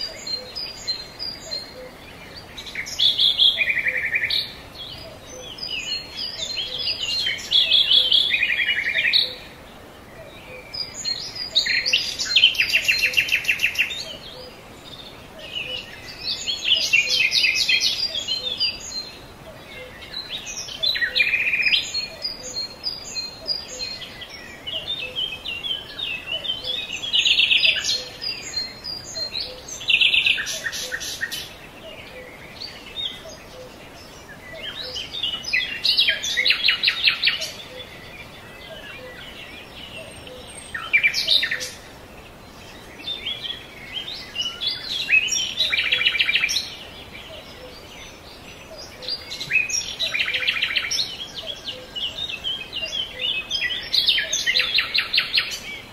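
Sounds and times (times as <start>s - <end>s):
songbirds chirping and trilling: 0.0s - 55.9s.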